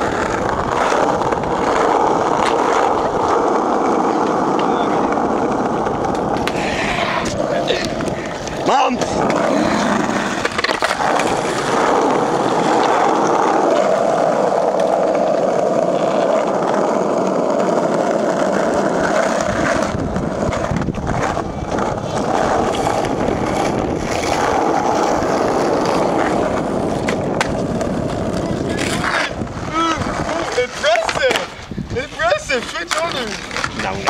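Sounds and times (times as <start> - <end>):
skateboard wheels rolling on asphalt: 0.0 - 34.0
skateboard knocks: 25.6 - 31.6.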